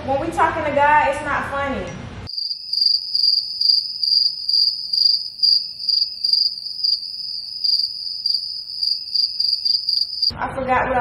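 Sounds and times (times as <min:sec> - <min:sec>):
cricket chirping: 0:02.3 - 0:10.3.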